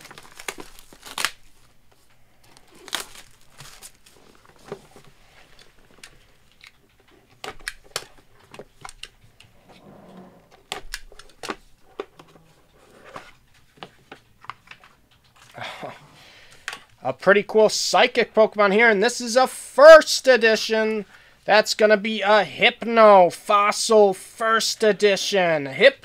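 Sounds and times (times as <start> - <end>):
cardboard rustling: 0.0 - 9.8.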